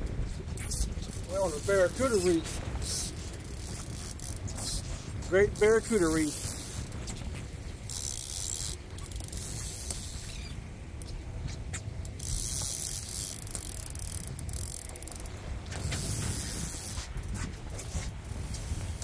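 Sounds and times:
fishing reel ratchet clicking: 0:00.7 - 0:07.0, 0:07.9 - 0:11.1, 0:12.0 - 0:17.4.

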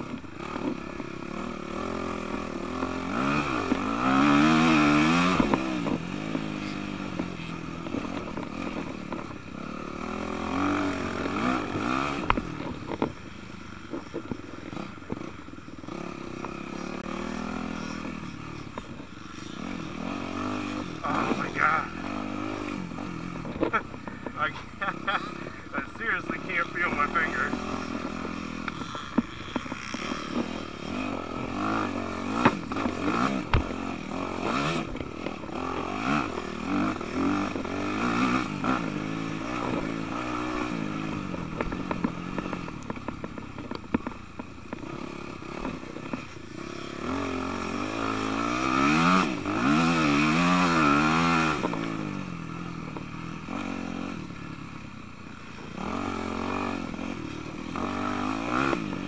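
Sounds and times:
dirt bike engine revving: 0:00.0 - 0:59.0
knocks and clatter from bike: 0:12.0 - 0:15.3, 0:28.1 - 0:30.6, 0:32.3 - 0:33.8, 0:41.2 - 0:44.9.

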